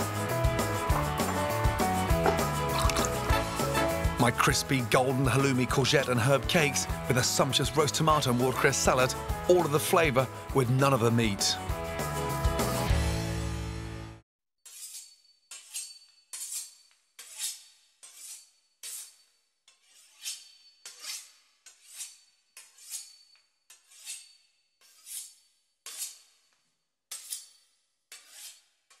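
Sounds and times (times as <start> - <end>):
knife sawing through steak: 14.7 - 26.4, 27.2 - 28.7.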